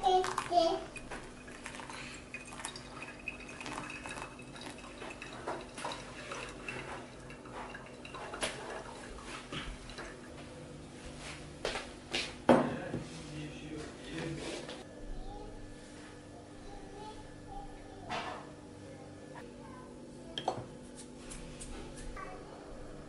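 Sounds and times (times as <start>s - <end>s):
hot water pouring onto coffee: 0.0s - 10.5s
soft water drips: 0.2s - 10.5s.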